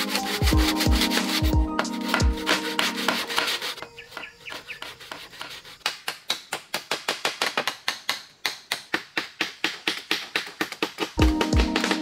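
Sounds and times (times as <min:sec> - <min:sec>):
rapid even tapping: 0:05.8 - 0:12.0.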